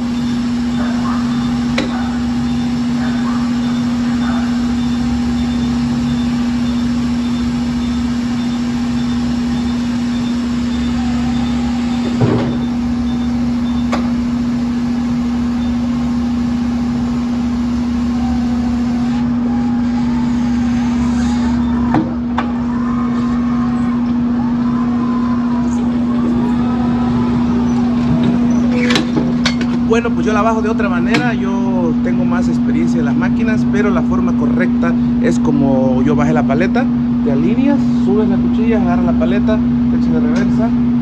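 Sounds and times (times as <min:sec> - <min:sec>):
high beep: 0:00.0 - 0:14.0
electric truck hum: 0:00.0 - 0:41.0.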